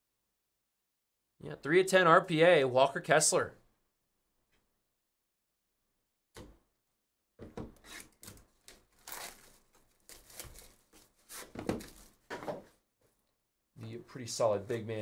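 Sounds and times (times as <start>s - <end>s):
plastic shrink wrap tearing: 7.9s - 12.2s
plastic crinkling: 8.2s - 12.3s.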